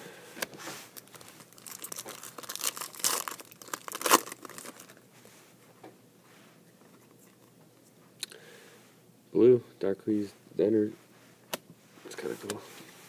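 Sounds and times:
foil wrapper crinkling and tearing: 0:01.0 - 0:05.0.

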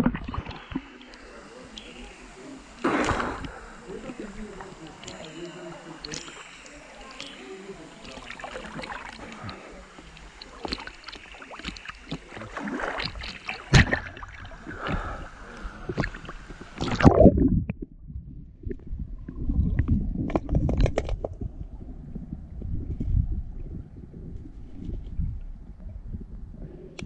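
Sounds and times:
sharp splashes: 0:00.0 - 0:15.2
water lapping and splashing: 0:00.0 - 0:17.4
faint underwater clicks: 0:00.0 - 0:17.9, 0:18.7 - 0:21.5
underwater rumble: 0:00.0 - 0:27.0.

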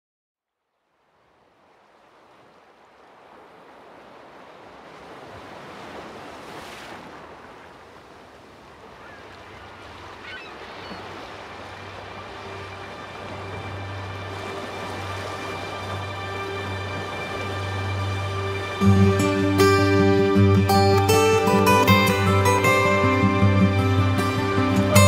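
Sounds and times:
ocean waves breaking: 0:00.8 - 0:25.0
bird cries: 0:08.8 - 0:12.0
low music tone: 0:12.0 - 0:25.0.

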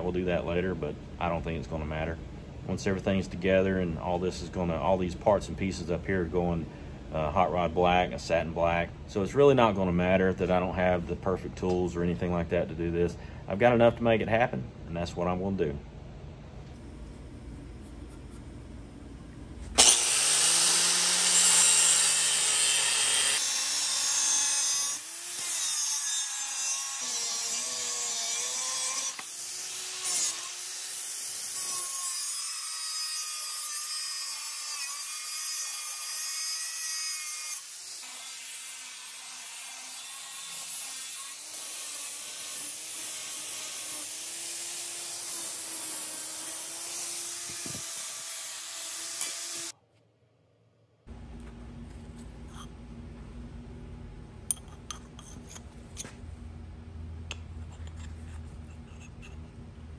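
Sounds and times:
angle grinder grinding steel: 0:19.8 - 0:49.8.

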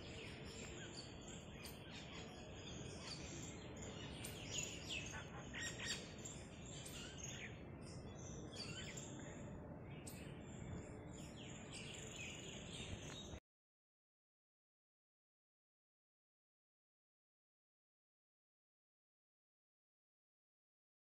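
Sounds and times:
low background hiss: 0:00.0 - 0:13.4
small birds chirping: 0:00.0 - 0:13.4.

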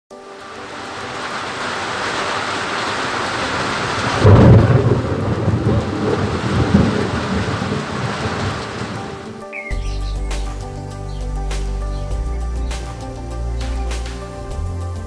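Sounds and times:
steady rain falling: 0:00.1 - 0:15.0
thunder clap rumbling: 0:00.8 - 0:09.5.

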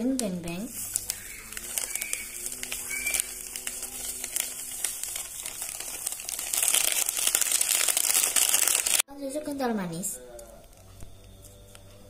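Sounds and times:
foil sachets crinkling: 0:00.5 - 0:09.0.

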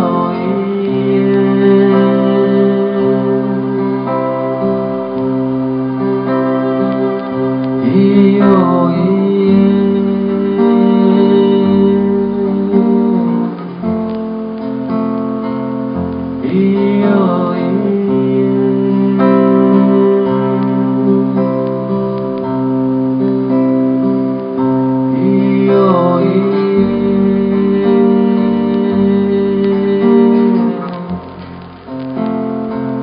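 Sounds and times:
man singing: 0:00.0 - 0:05.5, 0:07.6 - 0:13.8, 0:16.4 - 0:22.1, 0:24.6 - 0:31.4
acoustic guitar chords: 0:00.0 - 0:33.0.

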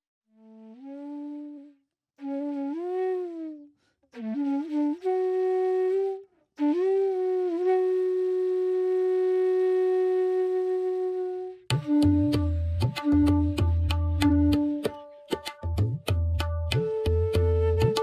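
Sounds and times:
solo flute melody: 0:00.3 - 0:18.0.

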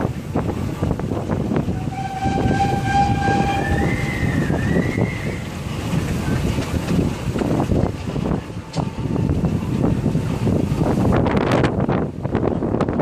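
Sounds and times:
steam engine rumble and clatter: 0:00.0 - 0:13.0
steam whistle blowing: 0:01.6 - 0:05.6.

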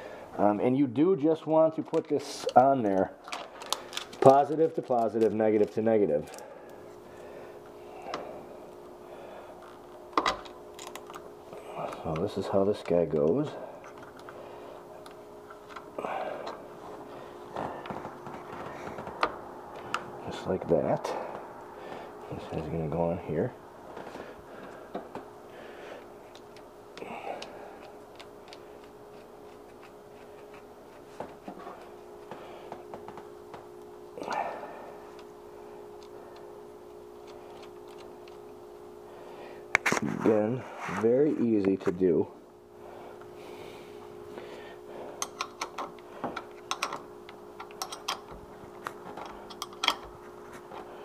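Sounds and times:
faint steady hum: 0:00.0 - 0:51.0
metal terminals clicking and tapping: 0:45.2 - 0:48.4.

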